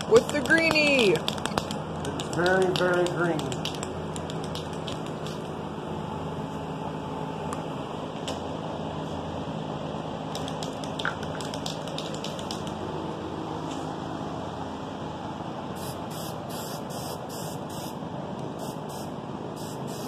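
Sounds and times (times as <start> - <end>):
fans running: 0.0 - 20.0
spray can rattling: 0.1 - 5.4, 10.4 - 12.7.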